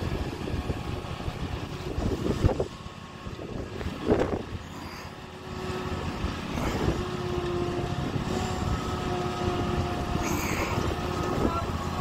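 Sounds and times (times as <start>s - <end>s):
riding mower engine running: 0.0s - 12.0s.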